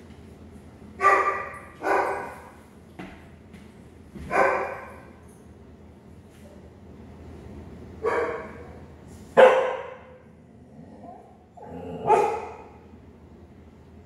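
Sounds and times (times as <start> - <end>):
dog barking: 1.0 - 2.5, 4.3 - 5.0, 8.0 - 8.6, 9.4 - 10.2, 12.0 - 12.8.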